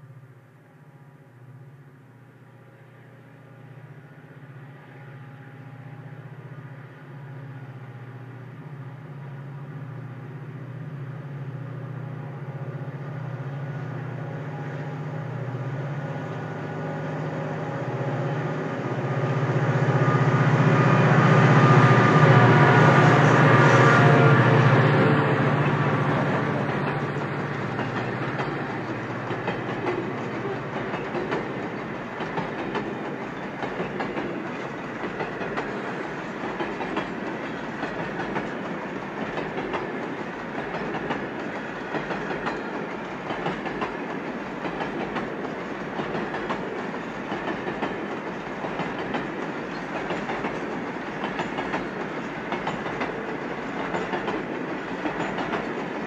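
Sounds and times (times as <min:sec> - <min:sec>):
diesel locomotive hum: 0:00.0 - 0:56.0
train wheels clicking over rail joints: 0:24.4 - 0:56.0.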